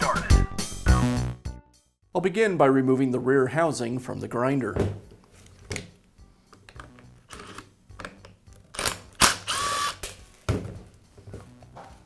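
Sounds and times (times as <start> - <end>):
cordless driver running: 9.2 - 10.0.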